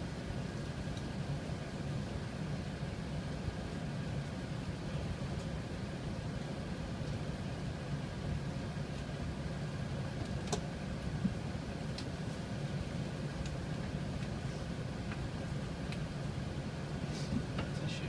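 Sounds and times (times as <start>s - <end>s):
aircraft cabin rumble: 0.0s - 18.0s.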